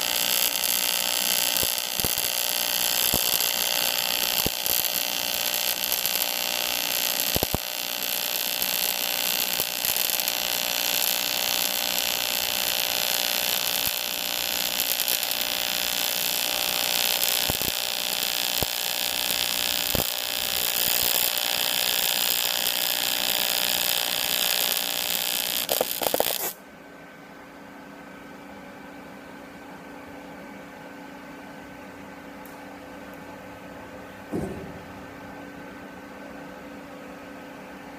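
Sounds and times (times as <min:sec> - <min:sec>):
welding arc buzzing hiss: 0:00.0 - 0:26.6.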